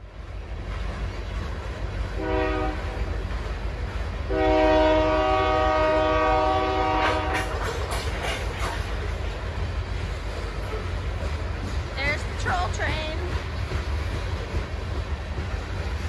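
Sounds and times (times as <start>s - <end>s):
passing train rumble: 0.0s - 16.0s
train horn blasts: 2.2s - 3.0s, 4.3s - 7.7s.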